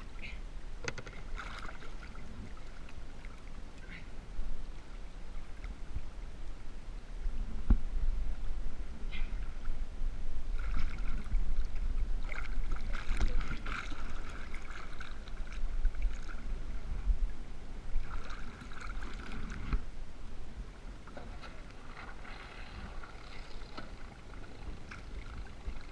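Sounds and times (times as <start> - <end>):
water lapping and splashing: 0.0 - 6.0, 10.4 - 19.9, 20.7 - 25.9
constant low rumble: 0.0 - 25.9.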